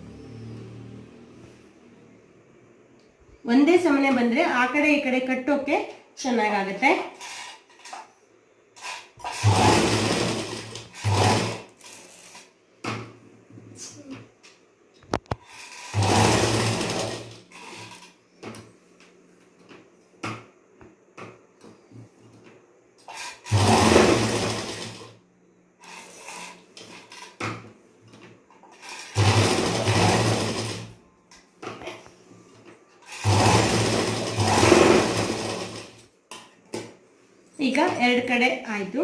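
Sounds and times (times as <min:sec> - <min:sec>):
sewing machine stitching: 0:07.2 - 0:08.0, 0:08.8 - 0:12.5, 0:15.2 - 0:18.1, 0:23.0 - 0:25.2, 0:25.8 - 0:27.4, 0:28.6 - 0:31.0, 0:33.0 - 0:36.0.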